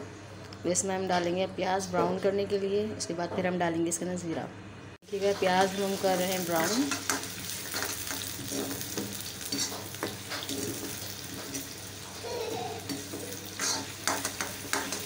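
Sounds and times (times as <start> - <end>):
onions sizzling in oil: 5.0 - 15.0
metal spatula scraping pan: 7.0 - 11.6, 12.8 - 15.0.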